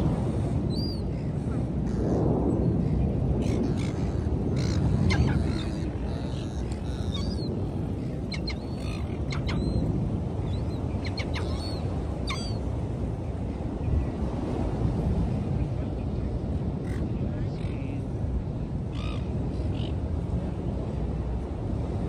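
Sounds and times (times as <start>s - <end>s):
wind and surf rushing: 0.0s - 22.0s
seagulls calling: 0.7s - 2.2s, 3.4s - 12.7s.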